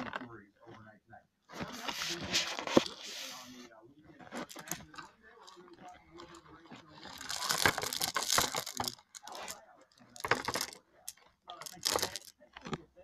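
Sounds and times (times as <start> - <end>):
rocks clattering into metal bowl: 7.1 - 9.5, 10.1 - 10.8, 11.6 - 12.3.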